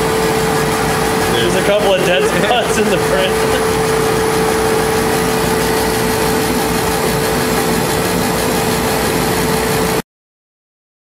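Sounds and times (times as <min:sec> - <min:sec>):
laser cutter whirring: 0:00.0 - 0:10.0.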